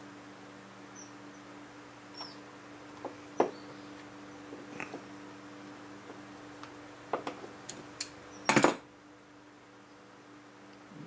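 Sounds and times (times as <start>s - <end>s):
steady low hum: 0.0s - 11.0s
faint high chirps: 0.9s - 1.5s.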